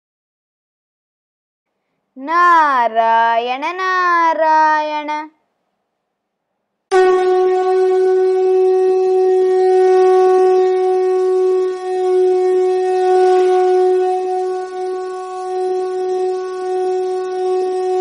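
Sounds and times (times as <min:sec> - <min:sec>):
wind instrument long note: 0:06.9 - 0:18.0.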